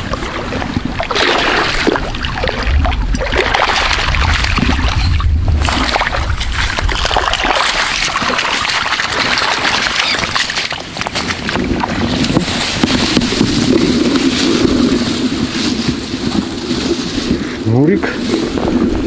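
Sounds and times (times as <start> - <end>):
fish thrashing and splashing in water: 0.0 - 14.9
wind rumbling on microphone: 0.0 - 19.0.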